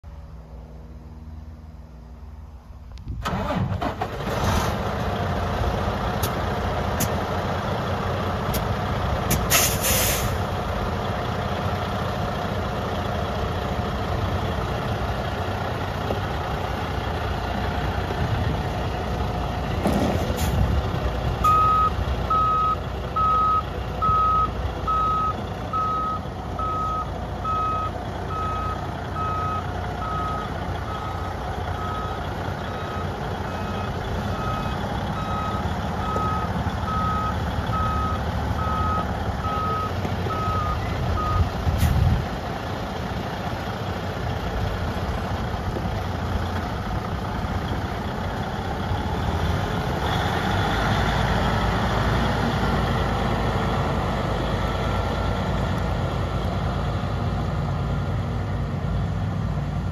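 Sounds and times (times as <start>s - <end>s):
diesel truck engine idling: 0.2s - 59.9s
compressed air hiss: 9.4s - 10.4s.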